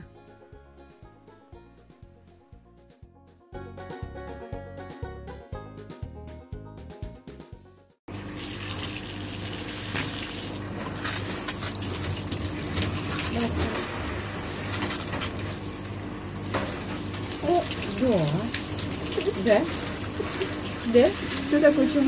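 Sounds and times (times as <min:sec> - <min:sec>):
background music: 0:00.0 - 0:08.0
shower water splashing on hands: 0:08.2 - 0:22.0.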